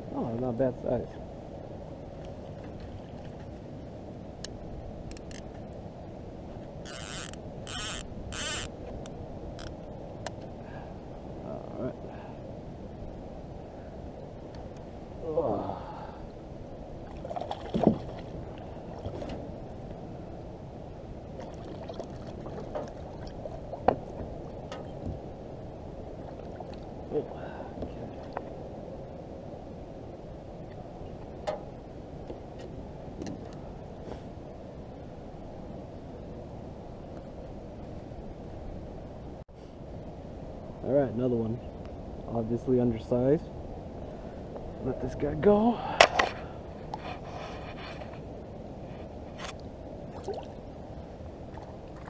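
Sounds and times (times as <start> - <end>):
wind: 0.0 - 52.0
fishing reel buzzing: 6.9 - 8.7
water lapping against kayak hull: 17.0 - 19.4, 21.3 - 25.2
water rushing: 50.0 - 50.8.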